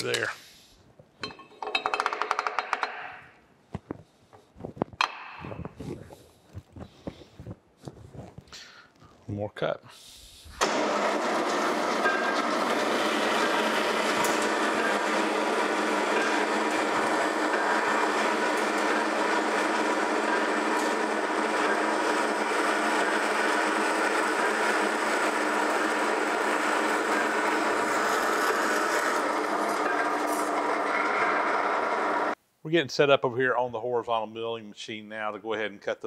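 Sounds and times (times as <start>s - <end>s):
band saw cutting metal: 10.6s - 32.4s.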